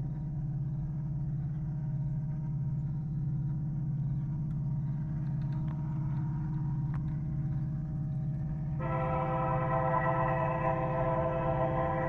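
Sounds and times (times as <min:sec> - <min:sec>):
distant diesel locomotive engines: 0:00.0 - 0:12.0.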